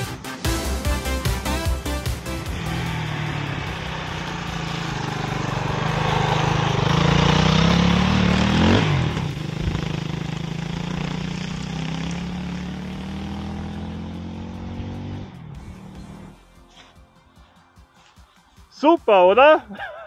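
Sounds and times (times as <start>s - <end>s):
motorcycle engine passing by: 2.2s - 16.4s.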